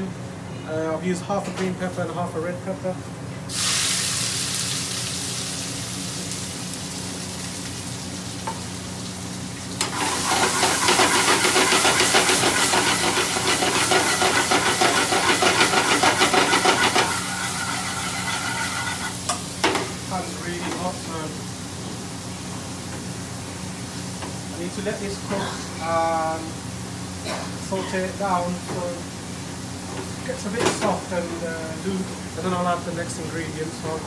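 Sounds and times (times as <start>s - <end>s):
vegetables sizzling in a frying pan: 3.5s - 34.0s
spoon scraping a pan: 10.0s - 19.2s.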